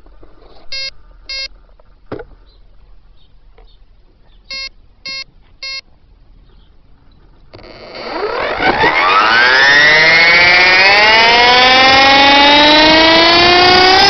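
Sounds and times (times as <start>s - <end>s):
short electronic beeps: 0.7s - 1.5s, 4.5s - 5.8s
electric motor whine: 7.6s - 14.0s.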